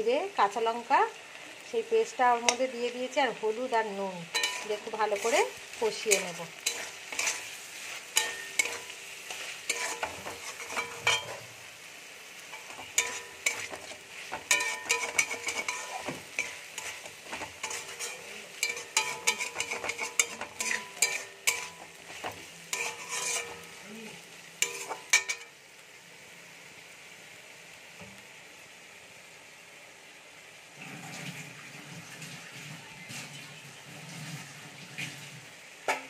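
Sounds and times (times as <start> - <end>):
hot oil sizzling: 0.0 - 36.0
metal spatula scraping a pan: 4.3 - 11.7, 12.5 - 23.8, 24.6 - 25.6.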